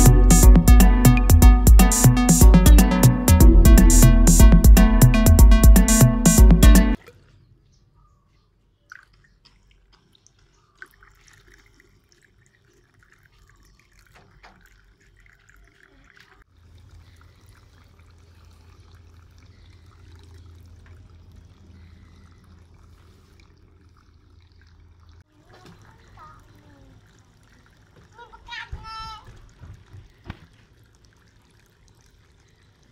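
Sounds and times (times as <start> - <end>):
water trickling into a bowl: 8.8 - 32.9.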